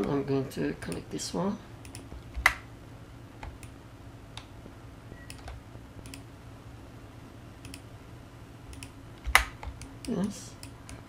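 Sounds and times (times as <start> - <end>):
steady low hum: 0.0 - 11.0
computer mouse clicking: 1.8 - 2.6, 5.2 - 6.3, 7.6 - 7.9, 8.7 - 11.0.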